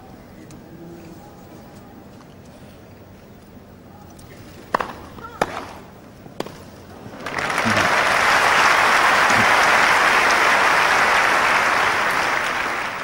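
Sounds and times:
crowd applauding: 7.1 - 13.0.

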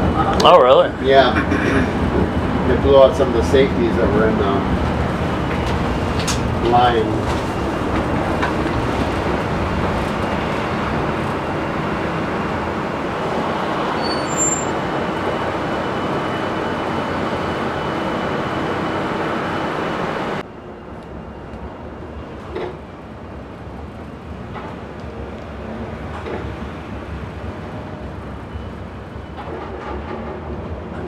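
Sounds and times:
streetcar wheels rumbling: 0.0 - 31.0.

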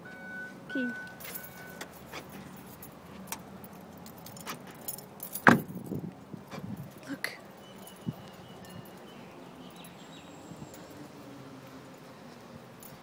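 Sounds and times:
car warning beep: 0.0 - 1.9, 7.6 - 9.1
keys jangling: 1.0 - 11.2, 12.7 - 13.0
car door slamming shut: 5.4 - 5.8.

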